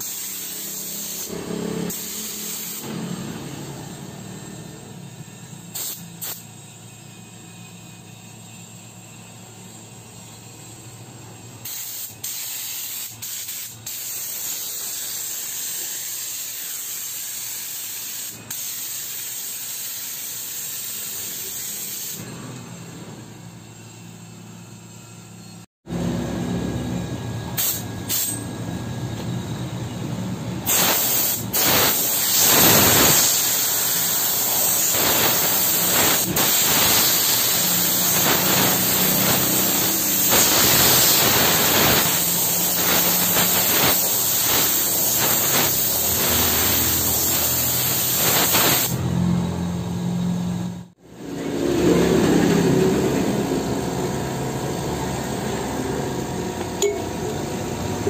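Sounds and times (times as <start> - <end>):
air washing gun hissing: 0.0 - 22.3, 27.5 - 28.7, 30.6 - 49.1.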